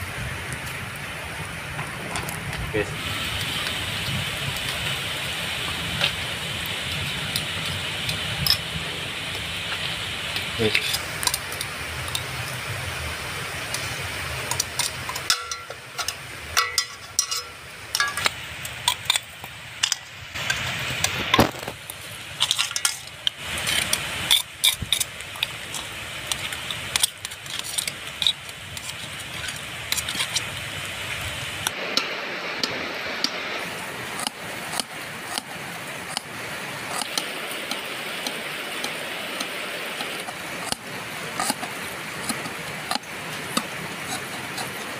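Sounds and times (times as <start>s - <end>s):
knife and shells clinking on tin: 14.5s - 20.6s.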